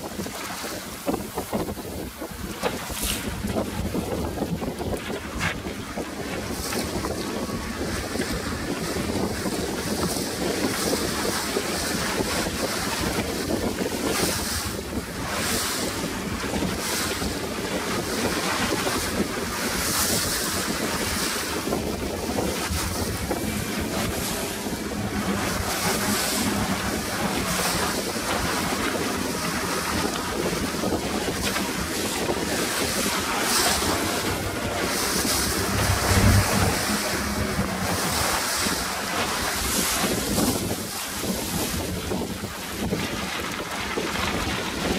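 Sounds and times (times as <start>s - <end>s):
choppy water and breaking waves: 0.0s - 44.9s
wind buffeting microphone: 0.0s - 44.9s
heavy low bump: 32.0s - 38.9s.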